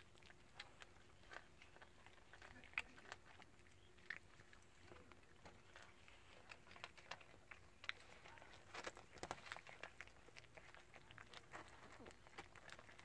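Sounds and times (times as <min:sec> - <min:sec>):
cats crunching dry kibble: 0:00.0 - 0:13.0.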